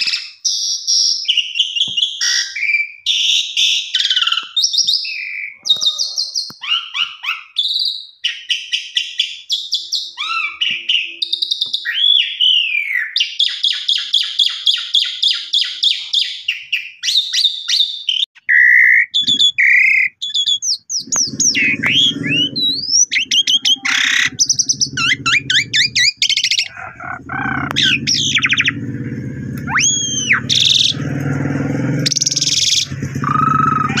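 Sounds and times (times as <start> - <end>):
starling singing: 0.0 - 34.0
steady low hum: 21.1 - 34.0.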